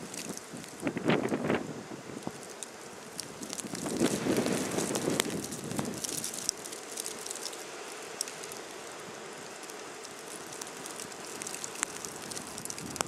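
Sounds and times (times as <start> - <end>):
blizzard wind hissing: 0.0 - 13.0
faint ticks: 9.4 - 13.0.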